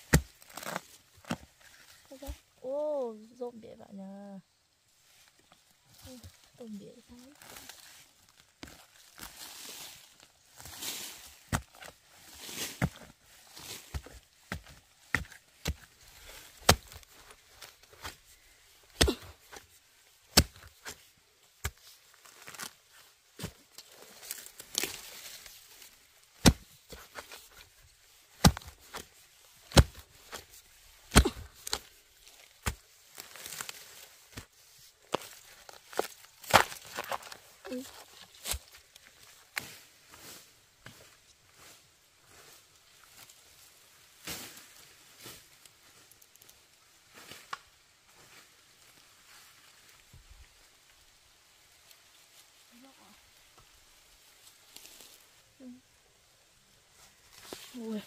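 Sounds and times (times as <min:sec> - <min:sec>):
rustling and tearing: 0:00.0 - 0:02.4, 0:05.2 - 0:39.8, 0:53.9 - 0:55.3.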